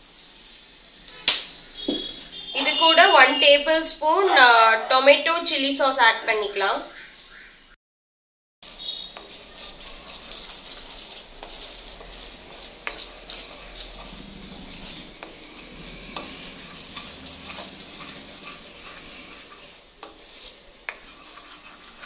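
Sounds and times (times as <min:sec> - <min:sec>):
sauce sizzling in a pan: 0:08.6 - 0:22.0.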